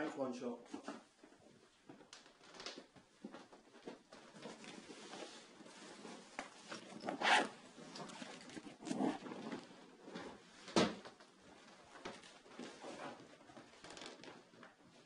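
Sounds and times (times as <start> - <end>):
fabric bags rustling and scraping: 4.1 - 10.6
zip being pulled: 6.7 - 9.4.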